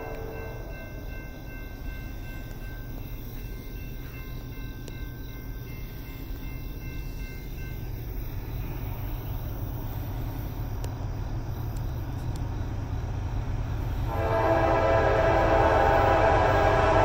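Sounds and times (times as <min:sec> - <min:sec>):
locomotive horn: 0:00.0 - 0:00.8, 0:14.1 - 0:17.0
diesel locomotive rumble: 0:00.0 - 0:17.0.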